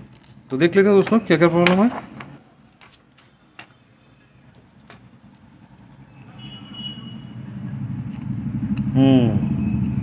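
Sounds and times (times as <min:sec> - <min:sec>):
vehicle engine: 0:04.4 - 0:10.0.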